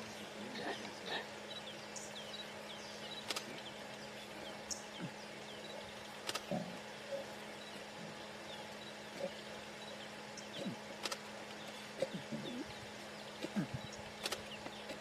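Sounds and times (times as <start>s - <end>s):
small birds chirping: 0.0s - 15.0s
sharp clicks: 3.2s - 3.5s, 6.2s - 6.5s, 11.0s - 11.3s, 14.2s - 15.0s
lion retching: 6.3s - 7.3s, 9.1s - 9.5s, 10.5s - 10.9s, 12.0s - 12.8s, 13.4s - 13.9s.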